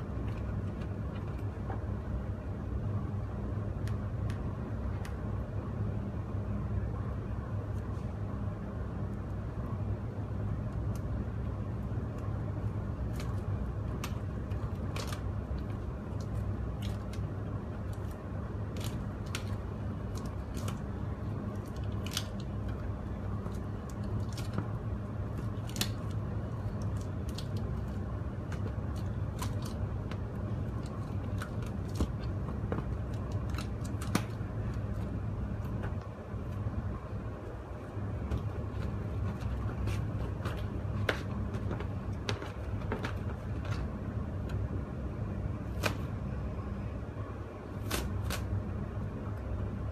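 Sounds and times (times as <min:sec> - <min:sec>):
steady low hum: 0:00.0 - 0:49.9
plastic film crackling: 0:13.0 - 0:36.6.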